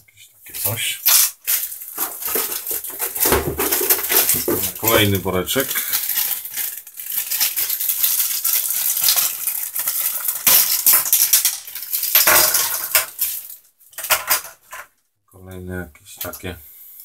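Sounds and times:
plastic bag crinkling: 1.0s - 14.4s
hard plastic parts knocking: 2.0s - 5.0s.

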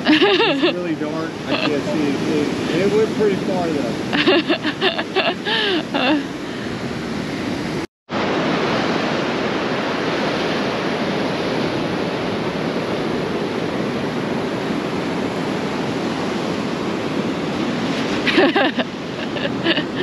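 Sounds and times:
surf breaking on beach: 0.0s - 20.0s
wind on microphone: 0.0s - 20.0s.

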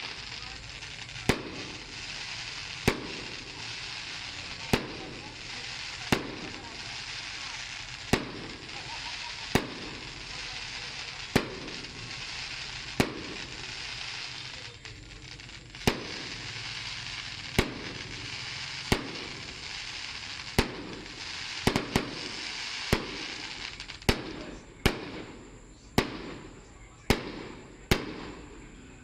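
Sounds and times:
continuous hiss: 0.0s - 29.0s
fireworks bangs: 0.0s - 29.0s.

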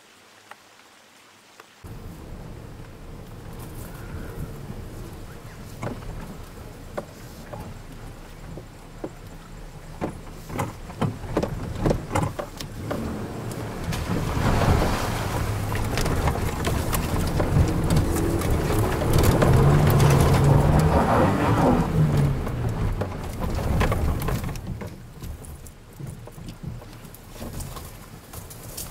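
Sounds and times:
off-road vehicle engine revving: 1.9s - 24.6s
sharp clicks and knocks: 5.5s - 14.1s, 15.7s - 27.9s.

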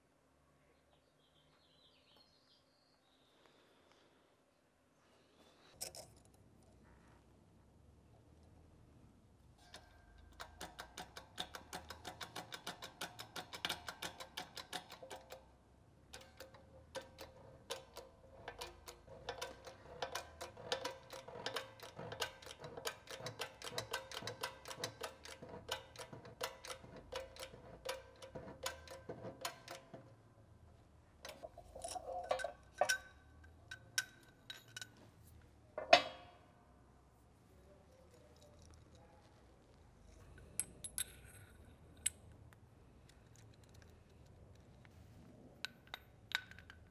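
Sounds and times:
metal clank: 31.2s - 35.0s, 35.8s - 36.5s.

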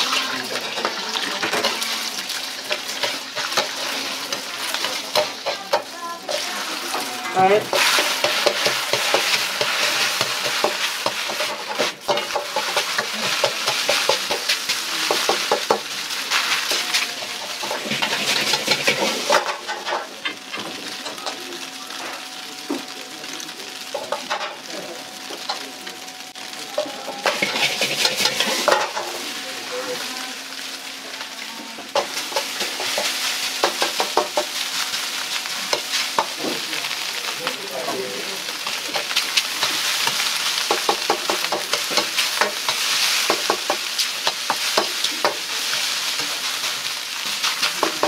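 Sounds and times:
rice sizzling in a wok: 0.0s - 48.0s
metal ladle scraping a wok: 27.2s - 28.9s.

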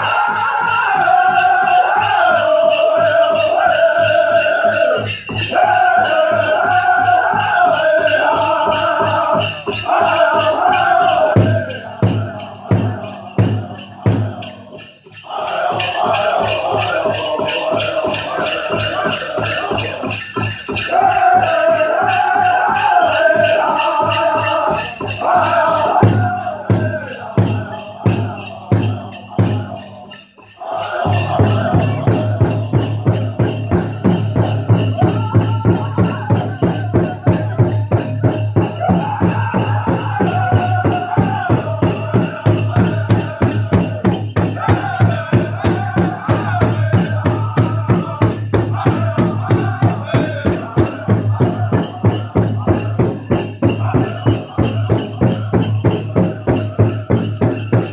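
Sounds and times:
big drum beat: 0.0s - 30.1s, 30.9s - 57.9s
bells rattling: 0.0s - 57.9s
group singing: 0.0s - 57.9s.

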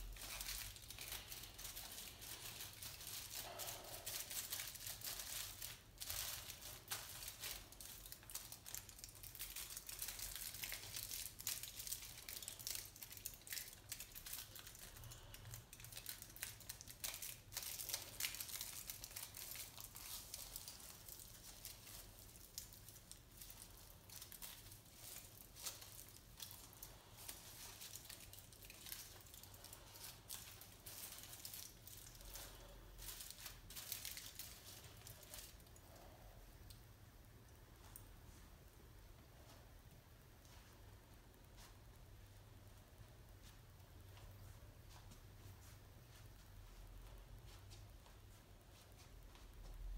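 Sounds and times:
aluminium foil crinkling: 0.0s - 36.7s.

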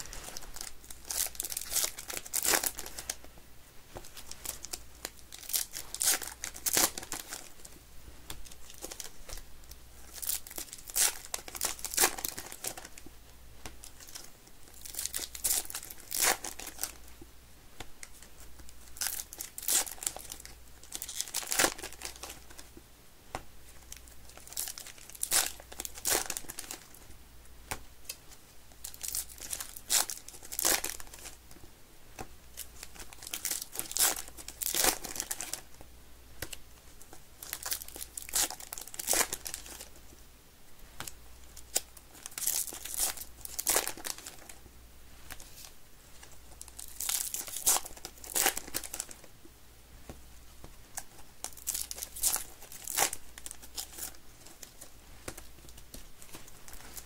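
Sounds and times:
foil wrappers tearing and crinkling: 0.0s - 3.2s, 4.2s - 7.5s, 10.1s - 13.0s, 13.9s - 17.0s, 18.9s - 22.5s, 23.9s - 26.9s, 28.8s - 31.4s, 32.6s - 35.6s, 37.4s - 39.9s, 41.7s - 44.5s, 46.6s - 49.2s, 51.4s - 57.0s.

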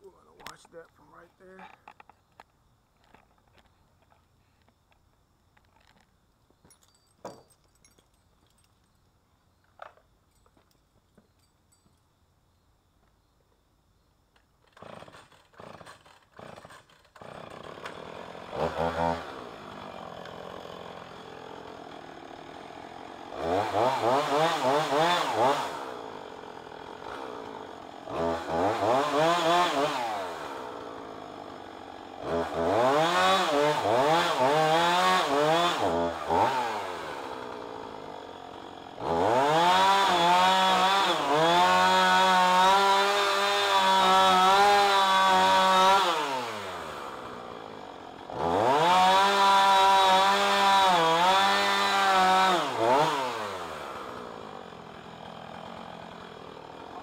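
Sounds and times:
chainsaw revving and idling: 0.0s - 2.0s, 14.6s - 57.0s.

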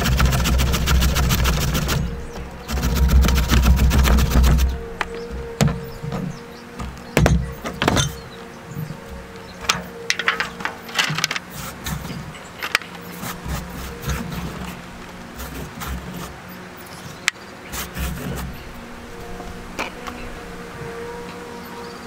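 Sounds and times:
carrot scraped on a grater: 0.0s - 2.1s, 2.7s - 4.7s.

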